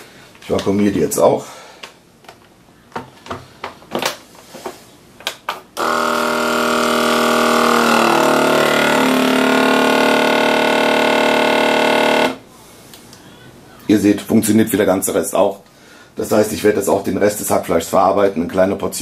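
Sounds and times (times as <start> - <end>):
vacuum sealer pump running: 5.8 - 12.4.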